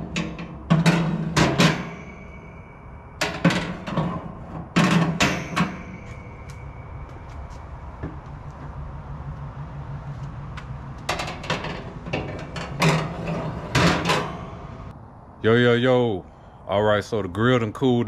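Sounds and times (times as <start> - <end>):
metal grates clanking: 0.0 - 6.8, 11.0 - 14.9
steady low hum: 0.0 - 16.8.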